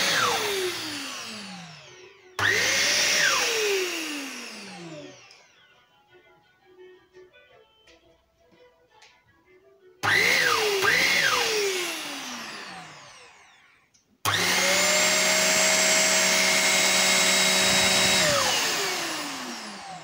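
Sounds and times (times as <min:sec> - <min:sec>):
vacuum motor whine: 0:00.0 - 0:05.8, 0:10.0 - 0:20.0.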